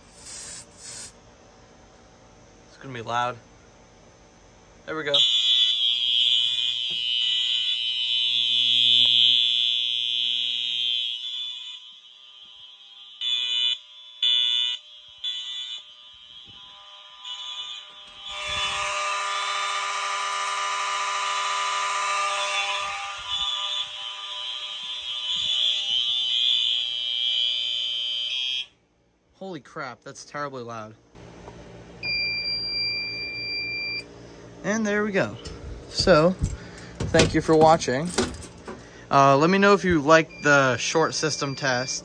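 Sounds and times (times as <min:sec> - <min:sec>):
fire alarm horns sounding: 0:04.9 - 0:28.8, 0:35.2 - 0:42.0.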